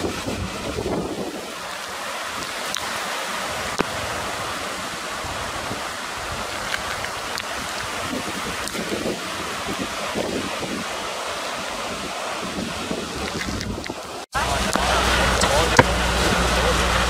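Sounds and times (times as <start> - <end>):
wind buffeting microphone: 0.0 - 14.2
fast-flowing floodwater: 0.0 - 17.0
heavy rain: 0.0 - 17.0.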